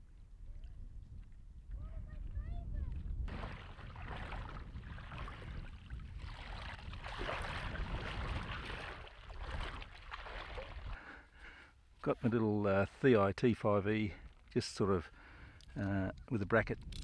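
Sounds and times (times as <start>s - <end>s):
water sloshing and splashing: 3.2s - 11.1s.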